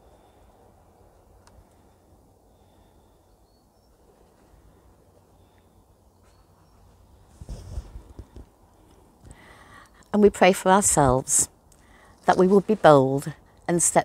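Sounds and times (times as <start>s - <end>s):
rustling and thumping near microphone: 6.9s - 8.5s.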